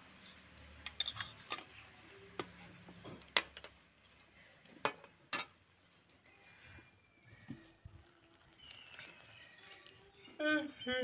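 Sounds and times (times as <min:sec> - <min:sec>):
metal spoon clinking on pan: 0:00.8 - 0:01.8.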